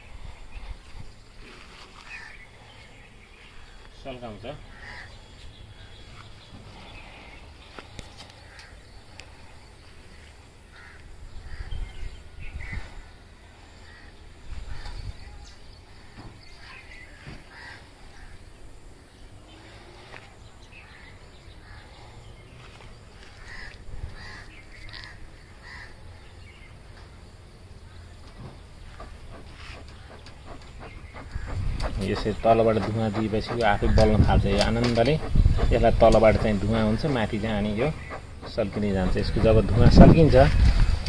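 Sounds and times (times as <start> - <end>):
crows cawing: 2.0 - 2.4, 4.7 - 5.3, 10.7 - 11.7, 17.5 - 18.4, 23.3 - 26.0.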